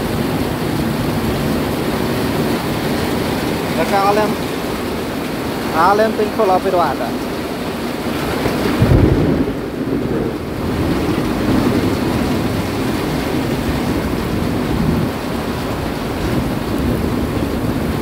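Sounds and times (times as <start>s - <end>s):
heavy rain falling: 0.0s - 18.0s
thunder rumble: 6.9s - 18.0s.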